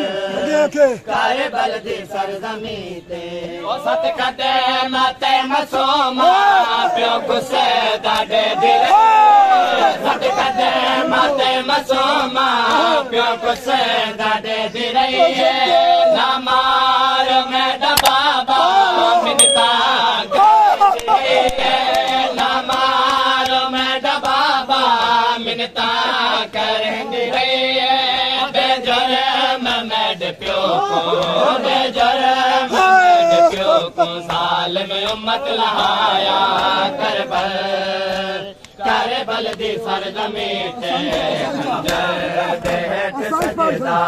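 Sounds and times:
men chanting lament: 0.0 - 44.0.

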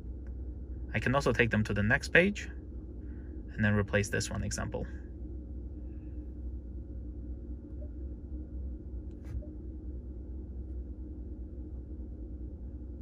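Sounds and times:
truck cab idle hum: 0.0 - 13.0.

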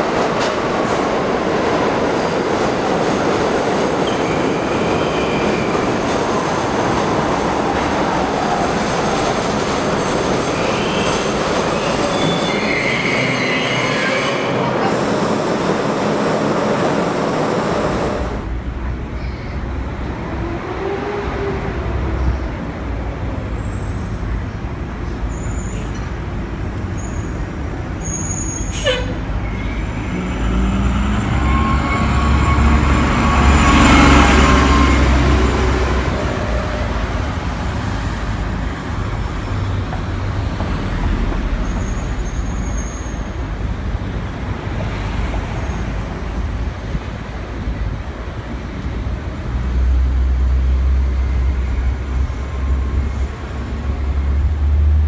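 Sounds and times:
subway train running: 0.0 - 55.0
diesel buses idling and pulling away: 21.5 - 55.0.

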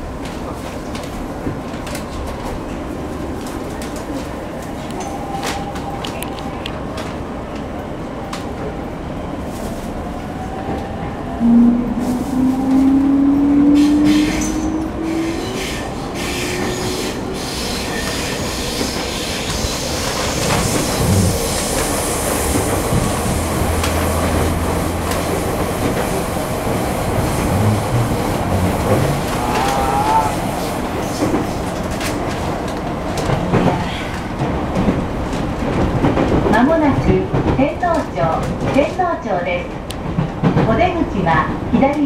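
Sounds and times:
train wheels rumbling: 0.0 - 42.0
rail-joint clicks: 3.4 - 7.7, 12.6 - 29.9.

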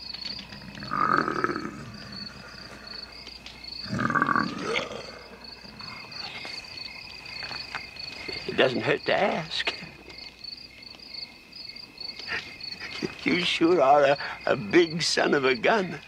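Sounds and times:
crickets chirping: 0.0 - 16.0
gruff wordless growling: 3.8 - 6.0.

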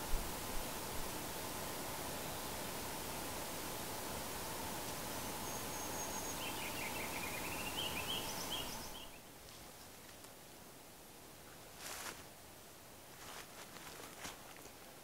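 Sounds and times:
creek water rushing: 0.0 - 9.4
songbird singing: 2.0 - 9.3.

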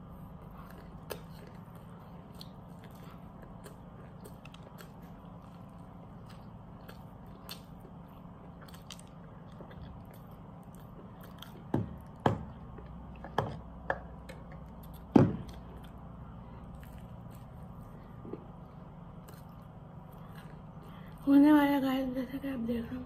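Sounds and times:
chewing food: 0.2 - 21.2.

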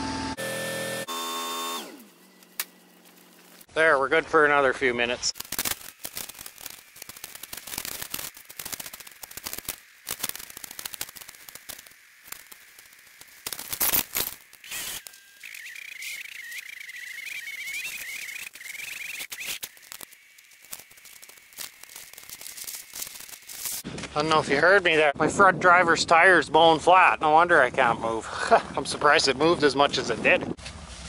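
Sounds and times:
faint wavering high whine: 0.0 - 23.8
footsteps crunching in snow: 1.9 - 3.7, 17.9 - 24.1.

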